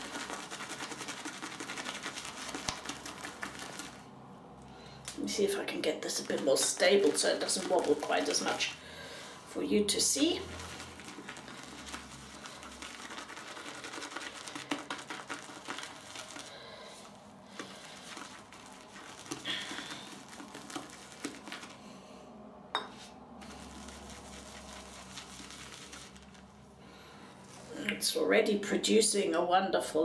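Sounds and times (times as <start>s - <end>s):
shaving brush swishing lather: 0.0s - 4.1s, 5.3s - 21.9s, 23.4s - 26.6s.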